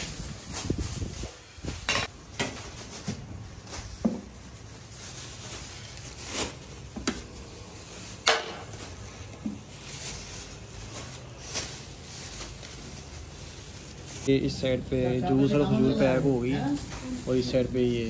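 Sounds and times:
plastic bags rustling: 0.0s - 18.0s.

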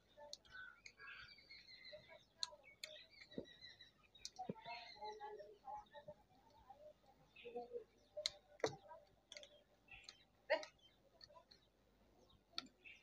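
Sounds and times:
faint clicks: 2.4s - 4.9s.

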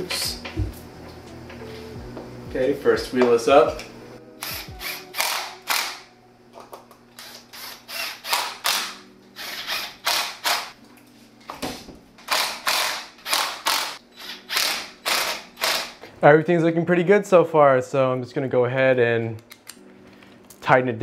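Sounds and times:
cordless drill driving screws: 7.2s - 10.7s, 12.3s - 15.9s.

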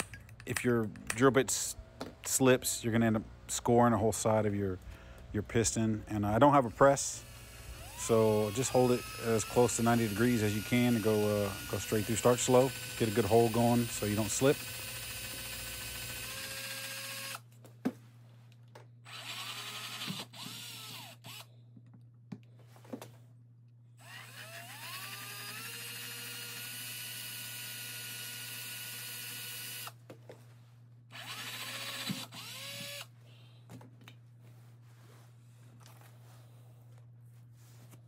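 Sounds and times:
cordless drill whining: 7.0s - 17.5s, 19.1s - 21.5s, 24.0s - 30.0s, 31.1s - 33.1s.

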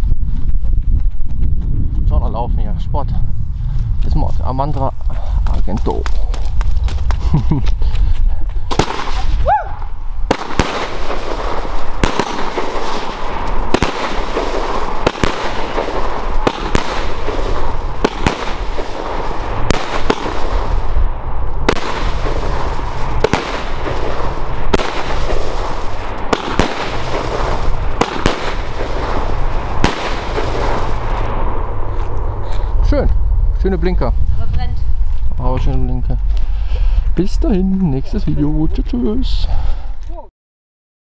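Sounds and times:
crackling hiss of burning stars: 2.8s - 40.3s
firework rising whine: 3.2s - 38.3s
firework shots: 8.6s - 35.4s.

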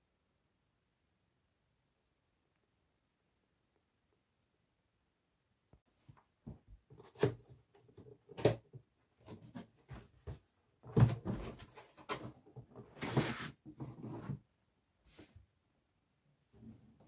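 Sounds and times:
cardboard scraping and rustling: 9.2s - 14.4s
cardboard and foam rubbing: 12.9s - 14.4s.

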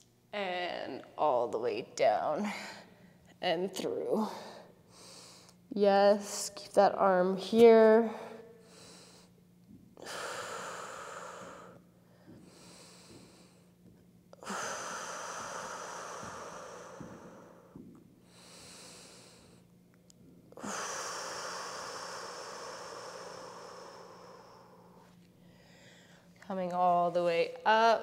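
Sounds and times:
woman exhaling deeply: 14.4s - 19.6s, 20.6s - 26.2s
soft inhales: 20.6s - 26.4s.

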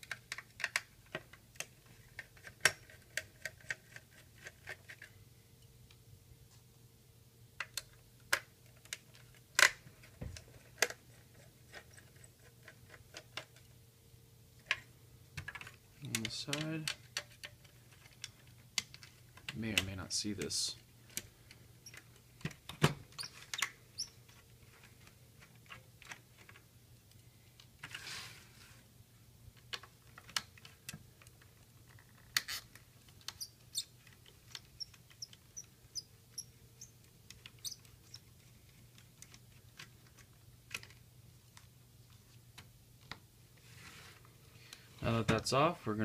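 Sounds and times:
faint steady hum: 0.0s - 46.0s
faint high squeaks: 23.2s - 24.2s, 37.6s - 38.2s.

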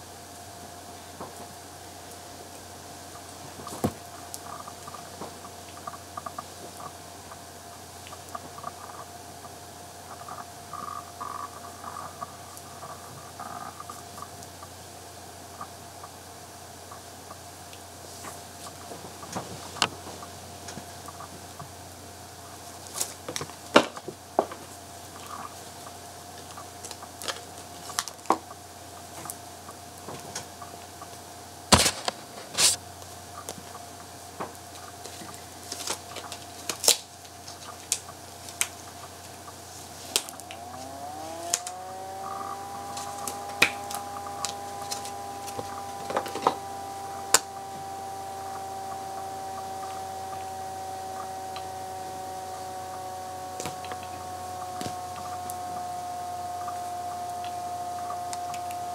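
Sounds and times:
steady hum: 0.0s - 58.9s.

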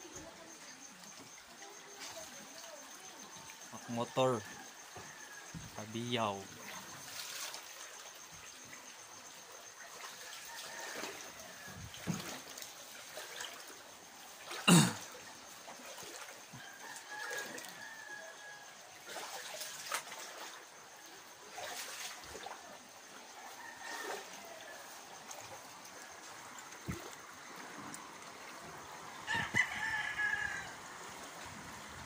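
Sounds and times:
floodwater trickling: 0.0s - 32.0s.

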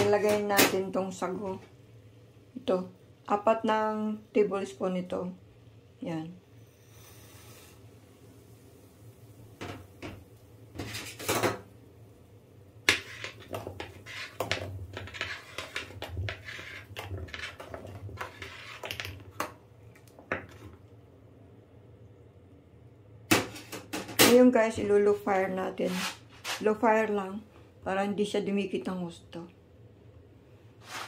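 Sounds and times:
metal spoon scraping saucepan: 12.9s - 19.2s.

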